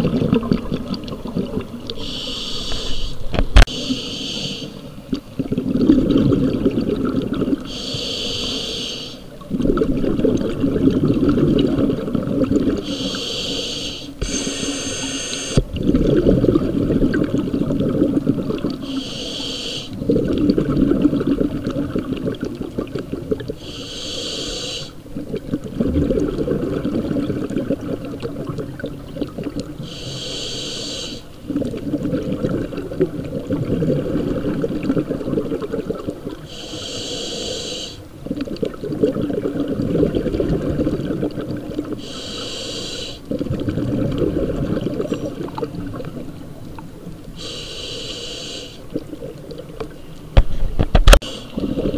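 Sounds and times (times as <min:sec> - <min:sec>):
regulator hissing inhale: 0:02.0 - 0:04.9, 0:07.7 - 0:09.3, 0:12.8 - 0:15.6, 0:18.8 - 0:20.0, 0:23.6 - 0:25.0, 0:29.8 - 0:31.3, 0:36.5 - 0:38.1, 0:42.0 - 0:43.3, 0:47.4 - 0:48.9.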